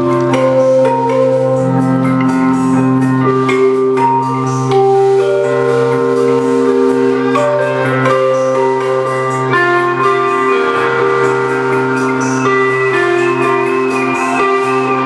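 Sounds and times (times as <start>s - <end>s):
band playing held notes: 0.0s - 15.0s.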